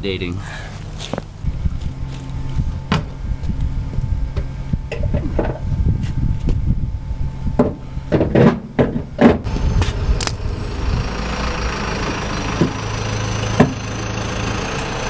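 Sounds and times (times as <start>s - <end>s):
sharp knocks and clunks: 7.6s - 10.0s.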